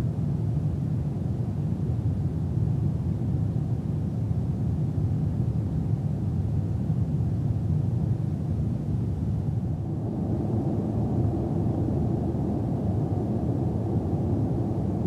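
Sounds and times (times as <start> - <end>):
airliner cabin rumble: 8.2 - 15.0.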